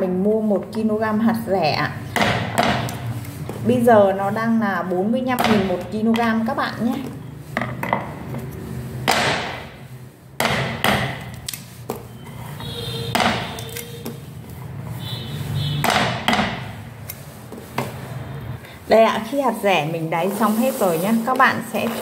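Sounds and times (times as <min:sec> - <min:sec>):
cleaver chopping on wooden board: 0:02.2 - 0:03.0, 0:09.1 - 0:09.7, 0:10.4 - 0:11.3, 0:13.1 - 0:13.6, 0:15.8 - 0:16.6.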